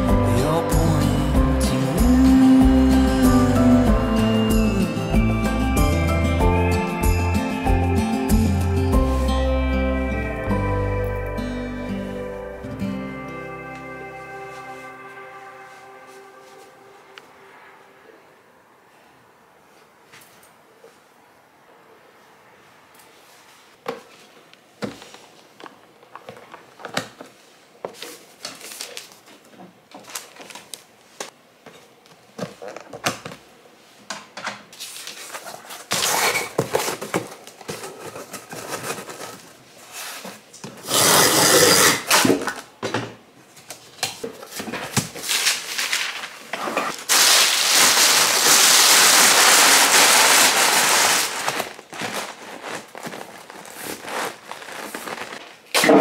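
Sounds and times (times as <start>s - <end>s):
cardboard boxes rustling: 34.8s - 40.9s, 50.8s - 55.7s
scraping ripping noise: 39.8s - 42.4s, 45.2s - 55.7s.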